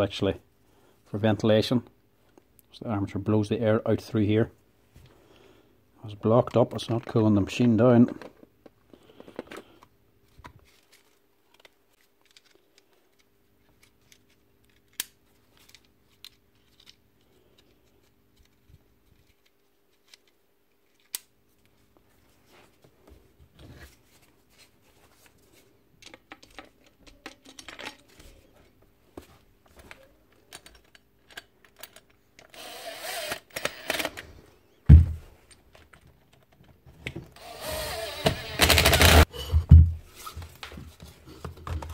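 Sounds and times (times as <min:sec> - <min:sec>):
metal parts clicking: 0:30.5 - 0:32.6
cordless drill running: 0:32.5 - 0:34.2, 0:37.4 - 0:39.3.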